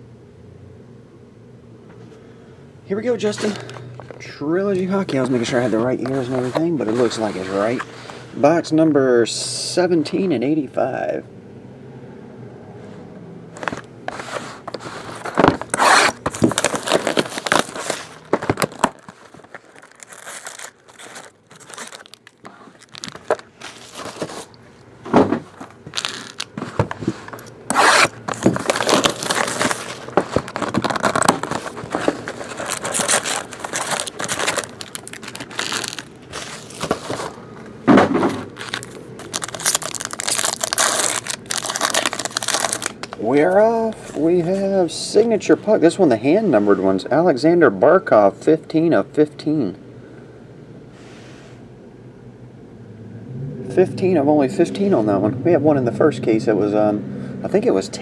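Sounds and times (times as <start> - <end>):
cardboard scraping and handling: 3.2 - 8.2, 13.6 - 43.3
plastic tearing and crinkling: 13.6 - 24.6, 25.4 - 37.4, 38.3 - 43.2.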